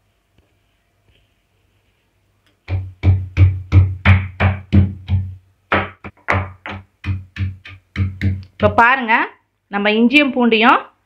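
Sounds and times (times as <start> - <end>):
stone pestle pounding in mortar: 2.7 - 8.8.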